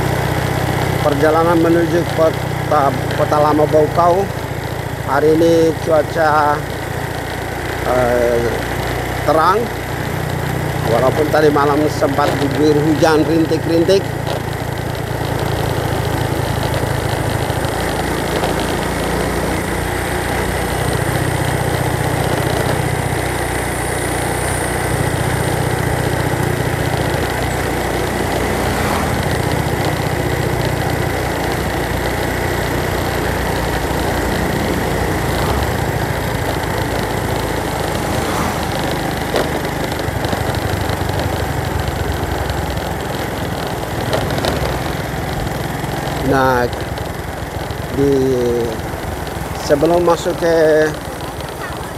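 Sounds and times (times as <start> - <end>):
road and wind noise: 0.0 - 51.9
vehicle engine running: 0.0 - 51.9.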